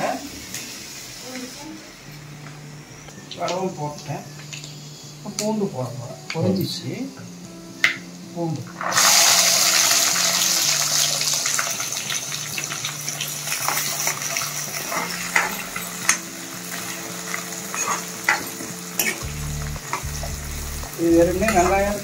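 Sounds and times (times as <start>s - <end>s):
garlic sizzling in hot oil: 0.0s - 5.7s, 7.8s - 22.0s
ladle stirring and scraping pan: 13.5s - 19.3s.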